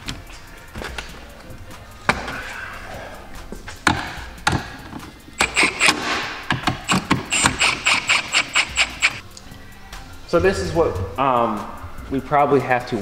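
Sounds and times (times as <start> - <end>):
power driver pulsing: 5.4 - 9.2.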